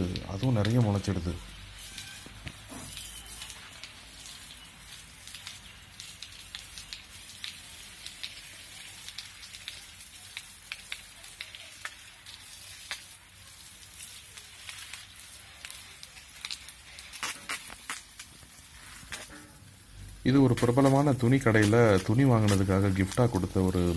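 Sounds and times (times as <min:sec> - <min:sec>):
water spray hissing on leaves: 0:00.0 - 0:23.9
drops pattering on foliage: 0:14.4 - 0:23.9.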